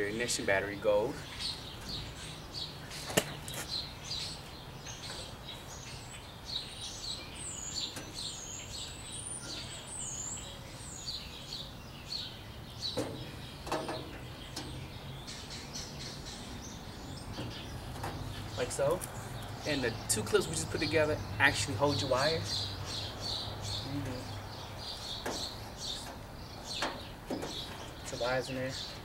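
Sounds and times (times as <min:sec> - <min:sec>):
small birds chirping: 0:00.0 - 0:29.0
light knocks: 0:25.2 - 0:28.0.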